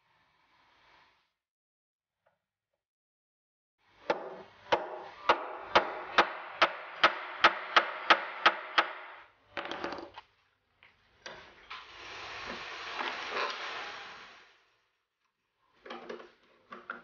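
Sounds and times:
hammer tapping metal nut: 4.1s - 9.2s.

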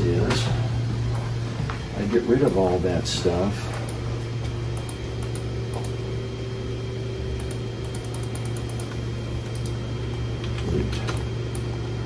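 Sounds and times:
steady low hum: 0.0s - 12.0s
keyboard and mouse clicks: 7.4s - 9.8s.

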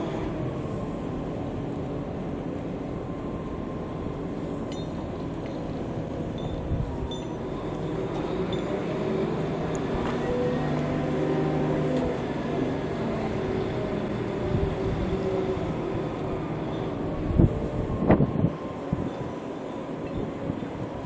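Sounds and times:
engine humming: 0.0s - 21.0s.

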